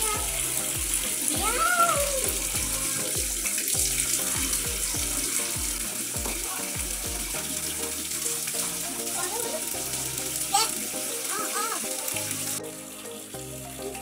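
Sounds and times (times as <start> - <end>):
regular low beat: 0.0 - 9.0
water splashing into plastic tub: 0.0 - 12.6.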